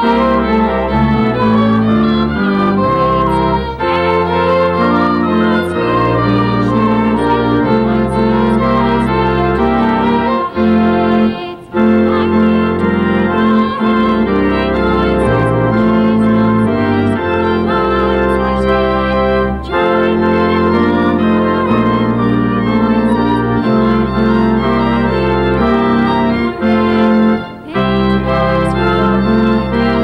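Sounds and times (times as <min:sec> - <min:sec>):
church organ playing chords: 0:00.0 - 0:30.0.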